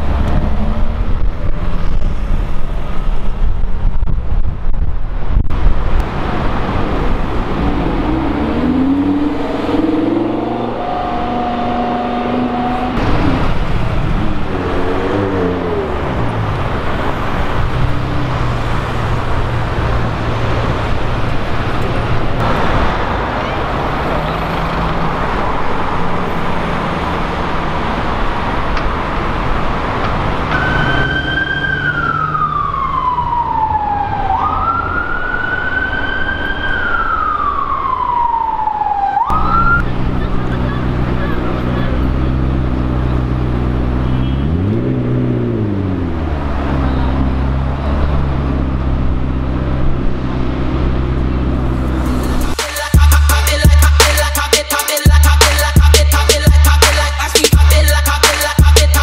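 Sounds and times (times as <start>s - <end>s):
city traffic noise: 0.0s - 59.0s
engine revving: 6.0s - 27.2s, 39.3s - 59.0s
emergency vehicle siren wailing: 30.4s - 42.2s.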